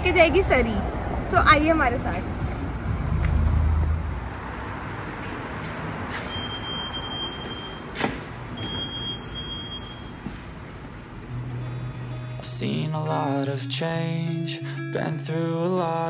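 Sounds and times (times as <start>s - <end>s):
low rumble: 0.0s - 4.8s.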